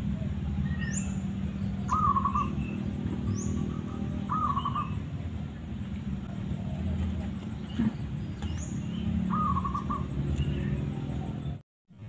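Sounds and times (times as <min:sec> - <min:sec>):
small birds chirping: 0:00.0 - 0:12.0
dove cooing: 0:01.8 - 0:05.5, 0:06.2 - 0:08.6, 0:09.2 - 0:11.4.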